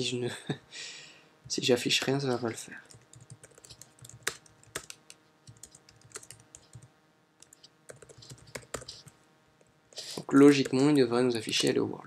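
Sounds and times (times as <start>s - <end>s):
typing on keyboard: 2.9s - 9.1s, 10.5s - 11.8s.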